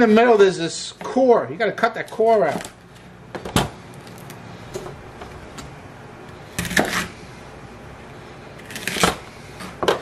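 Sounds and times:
knife cutting fennel: 0:06.6 - 0:07.2, 0:08.6 - 0:09.8.

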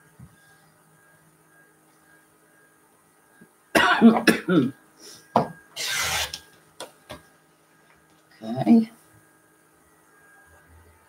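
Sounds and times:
person coughing: 0:03.8 - 0:04.7
rotary cutter slicing fabric: 0:05.8 - 0:06.5.

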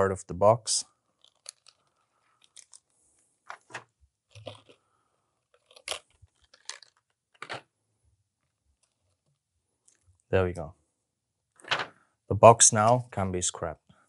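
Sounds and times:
plastic packaging crackling: 0:01.2 - 0:02.9, 0:05.5 - 0:07.6.

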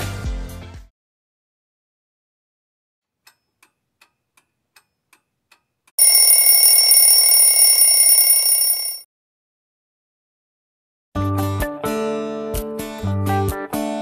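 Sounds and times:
alarm clock ringing: 0:06.0 - 0:09.0
alarm clock ticking: 0:06.0 - 0:09.0.

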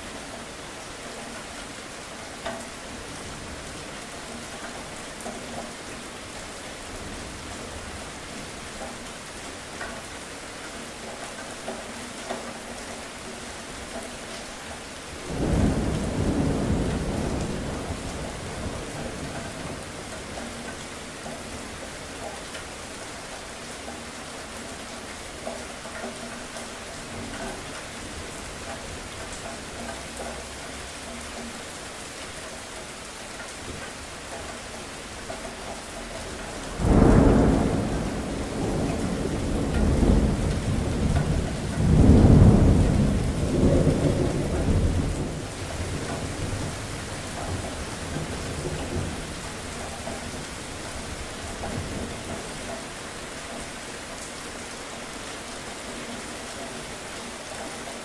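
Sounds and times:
steady rain falling: 0:00.0 - 0:58.0
thunder crack and rumble: 0:15.2 - 0:20.5, 0:36.5 - 0:52.8.

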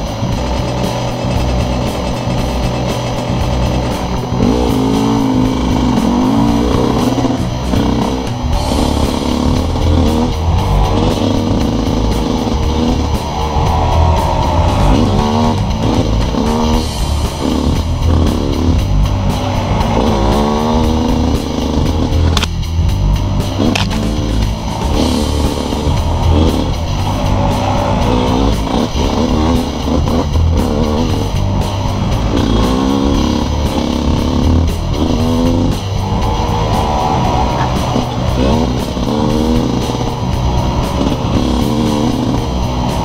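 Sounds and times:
motorcycle engine revving: 0:00.0 - 0:43.0
music: 0:00.0 - 0:43.0.

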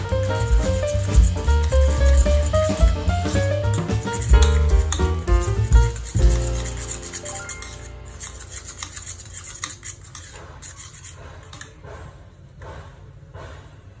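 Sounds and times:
metal fork scraping ceramic bowl: 0:03.7 - 0:11.8.

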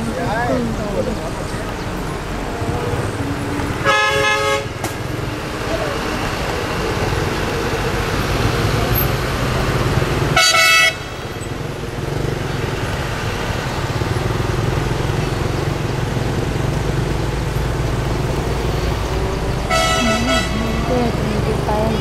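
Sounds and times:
vehicle engine and road noise: 0:00.0 - 0:22.0
vehicle horn honk: 0:03.8 - 0:04.7, 0:10.4 - 0:11.1, 0:19.7 - 0:22.0.

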